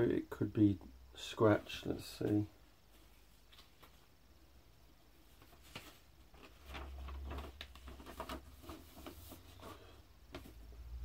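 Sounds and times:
handling vinyl record sleeve: 5.2 - 11.0.

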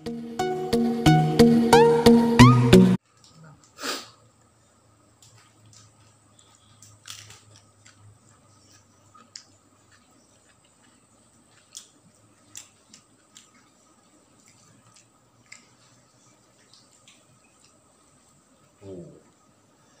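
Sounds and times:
person chewing food: 5.2 - 18.8.

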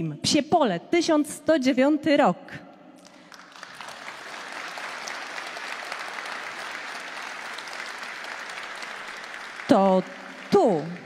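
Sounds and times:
large audience applauding: 3.0 - 11.0.

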